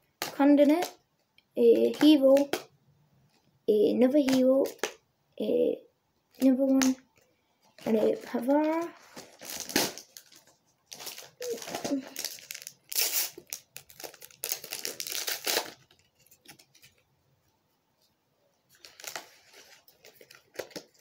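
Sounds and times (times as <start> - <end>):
wrapper tearing and crinkling: 8.7 - 17.0, 18.7 - 21.0.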